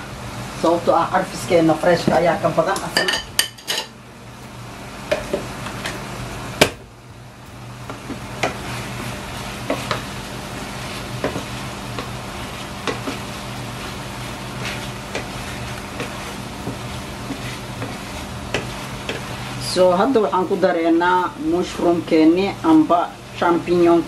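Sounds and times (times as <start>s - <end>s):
chicken sizzling in a frying pan: 4.7s - 24.0s
spatula knocking against pan: 12.8s - 13.2s.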